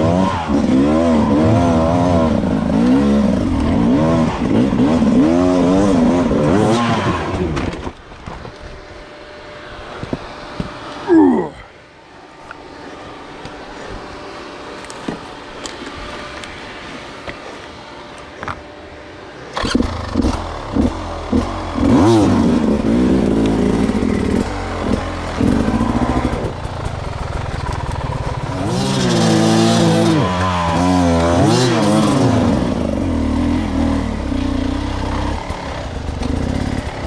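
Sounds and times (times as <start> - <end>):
motorcycle engine revving: 0.0 - 8.0, 19.5 - 37.0.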